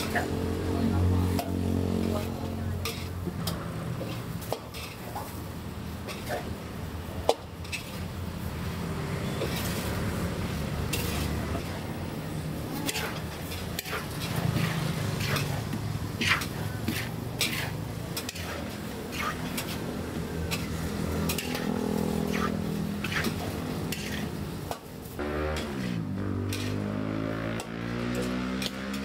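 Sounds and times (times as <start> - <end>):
metal spatula scraping pot: 2.1 - 5.4, 7.6 - 8.1, 9.2 - 27.0.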